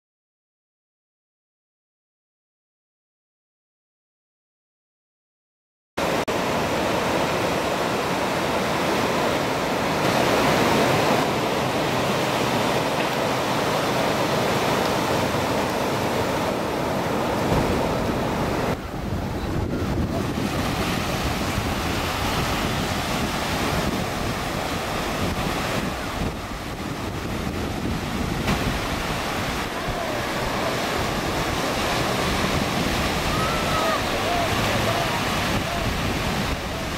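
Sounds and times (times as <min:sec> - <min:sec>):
waves breaking: 0:06.0 - 0:36.9
wind on microphone: 0:06.4 - 0:36.9.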